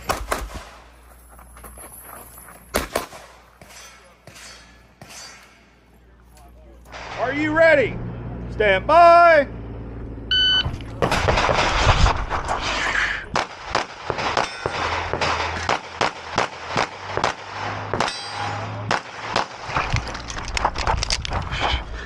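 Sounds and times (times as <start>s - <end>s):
rapid handgun shots: 0.0s - 0.9s, 13.3s - 18.2s, 18.9s - 19.8s
shot timer beep: 10.3s - 10.7s.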